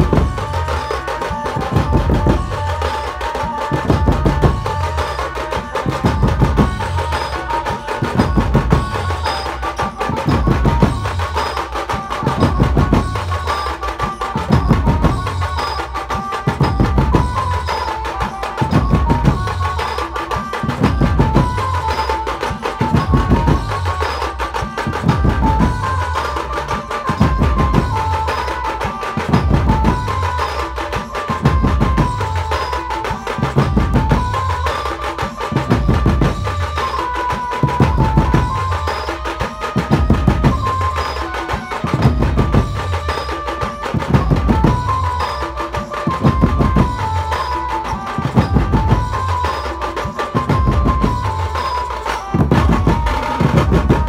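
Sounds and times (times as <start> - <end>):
held melody: 0.0 - 54.0
low drums beating: 0.0 - 54.0.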